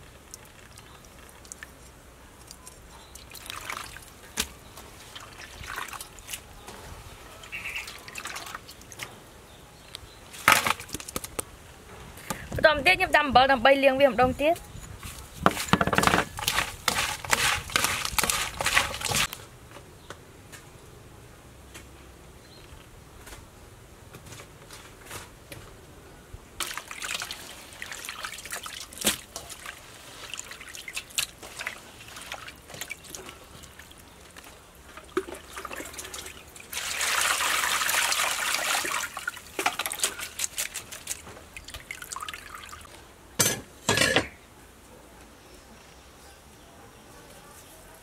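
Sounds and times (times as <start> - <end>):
water splashing and sloshing in bowl: 0.0 - 6.5, 7.4 - 9.2, 15.0 - 19.4, 26.6 - 42.9
water pouring: 3.2 - 4.2, 16.4 - 19.3, 26.6 - 42.9.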